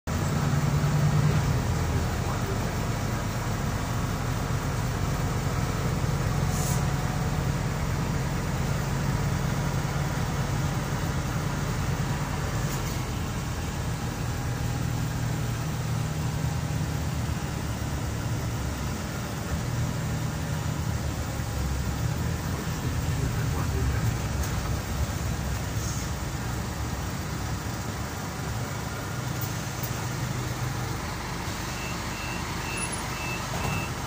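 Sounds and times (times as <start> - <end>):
bus engine drone: 0.0 - 34.0
road noise: 0.0 - 34.0
brief air hisses: 6.4 - 7.0, 25.8 - 26.2.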